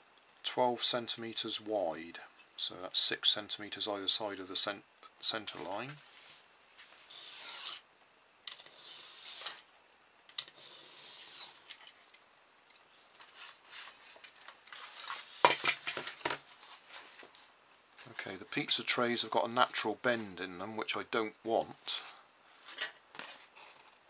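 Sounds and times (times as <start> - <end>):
knife cutting foam: 7.1 - 7.8, 8.7 - 9.6, 10.6 - 11.6.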